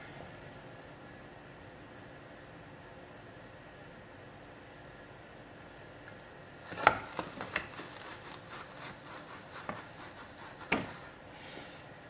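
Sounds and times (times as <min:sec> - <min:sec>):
light taps and rubbing on board: 0:06.9 - 0:11.1.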